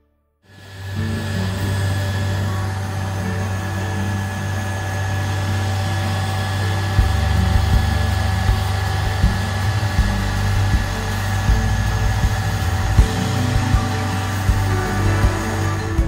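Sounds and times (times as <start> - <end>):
diesel engine running with whine: 0.5 - 16.0
deep rumble with low thumps: 7.0 - 16.0.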